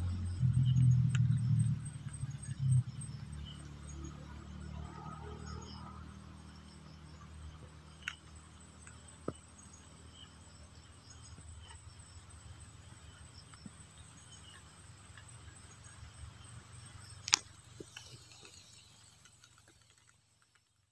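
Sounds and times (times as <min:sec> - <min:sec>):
insects chirping: 0:00.0 - 0:20.9
sharp clicks: 0:08.0 - 0:09.0.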